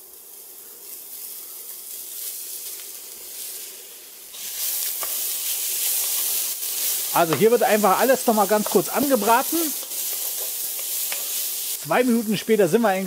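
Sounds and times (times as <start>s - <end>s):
onions frying in hot oil: 0.0s - 13.0s
wooden spoon stirring food: 4.7s - 11.7s.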